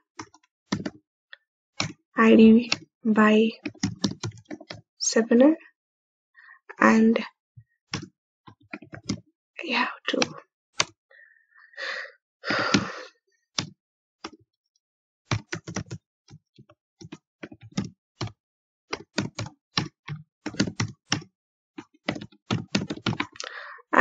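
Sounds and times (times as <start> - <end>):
keyboard typing clicks: 0.2 - 1.0, 3.6 - 4.8, 8.7 - 9.2, 15.3 - 23.5.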